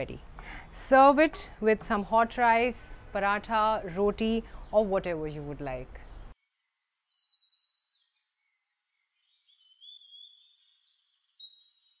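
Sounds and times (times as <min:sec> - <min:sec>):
bird whistles and chirps: 0:06.9 - 0:12.0.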